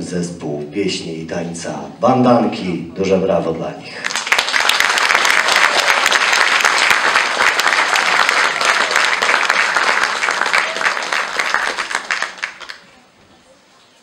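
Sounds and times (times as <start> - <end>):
audience applauding: 4.0 - 12.9.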